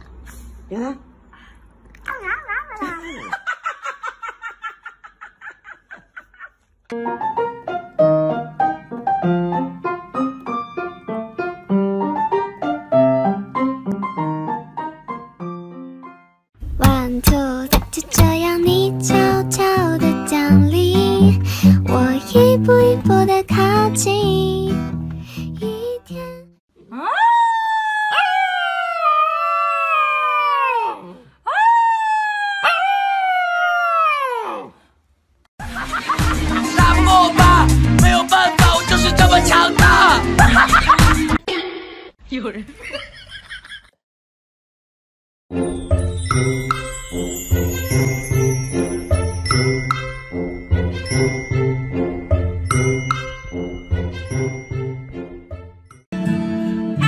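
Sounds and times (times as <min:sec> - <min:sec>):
piano playing bouncy melody: 0:06.9 - 0:26.3, 0:45.5 - 0:57.0
puppy howling: 0:26.9 - 0:34.8.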